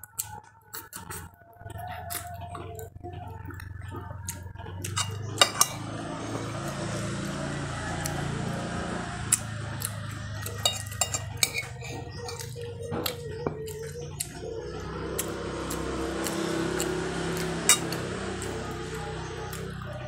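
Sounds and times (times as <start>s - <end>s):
steady low hum: 0.8s - 20.0s
utensil clinking against dish: 4.8s - 5.8s, 10.4s - 13.8s.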